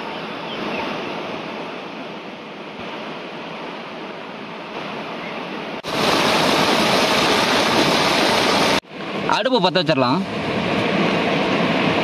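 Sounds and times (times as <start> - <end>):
waterfall rushing: 5.8 - 9.9.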